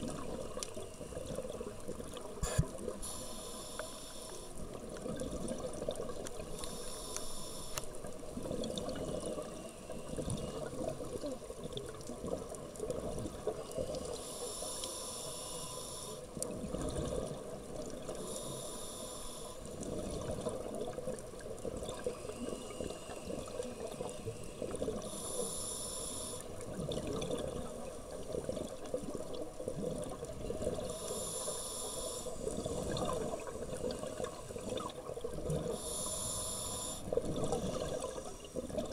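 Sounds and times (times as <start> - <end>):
low rumble of water: 0.0 - 38.9
hissing regulator inhalation: 2.4 - 4.6, 6.5 - 7.9, 14.1 - 16.3, 18.2 - 19.7, 22.0 - 26.5, 30.9 - 34.7, 35.6 - 38.6.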